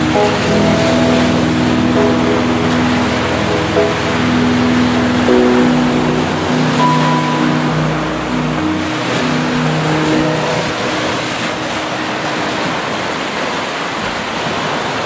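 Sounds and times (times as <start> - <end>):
soft background music notes: 0.0 - 13.0
waves breaking on beach: 0.0 - 15.0.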